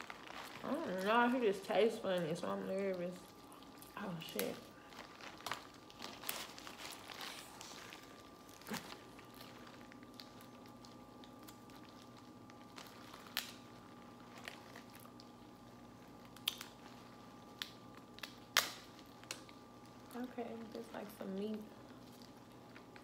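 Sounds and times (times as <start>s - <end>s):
faint steady hum: 0.0s - 23.0s
soft squishing: 0.0s - 23.0s
crab shell cracking: 3.3s - 20.0s.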